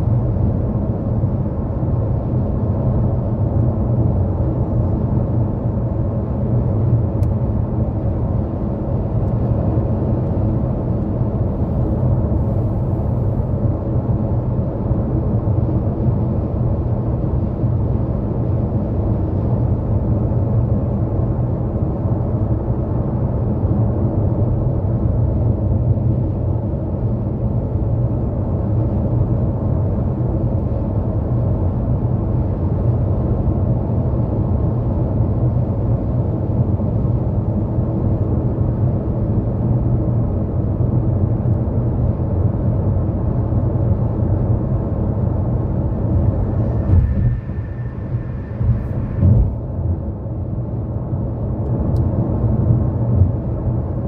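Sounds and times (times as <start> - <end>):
car engine drone: 0.0 - 54.0
tyre rumble and road noise: 45.4 - 50.2.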